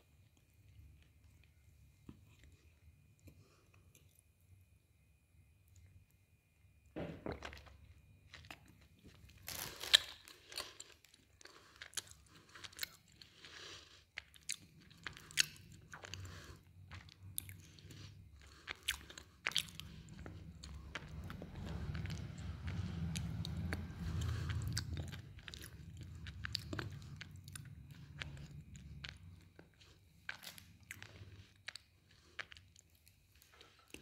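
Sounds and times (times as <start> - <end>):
crunching and chewing: 7.0 - 34.0.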